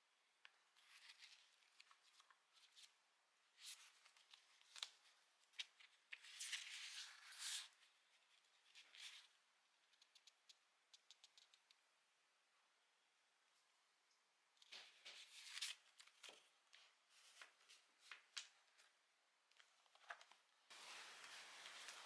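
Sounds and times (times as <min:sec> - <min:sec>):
book pages rustling: 0:00.7 - 0:02.9, 0:03.6 - 0:09.3, 0:14.6 - 0:18.9, 0:19.6 - 0:22.0.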